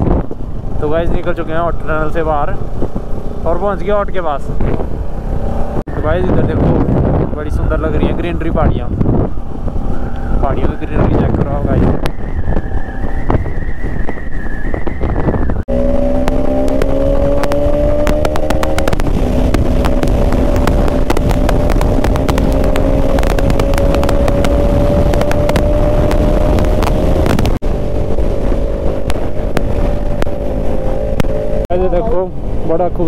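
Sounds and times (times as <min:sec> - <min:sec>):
wind buffeting microphone: 0:00.0 - 0:33.0
motorcycle engine running: 0:11.1 - 0:33.0.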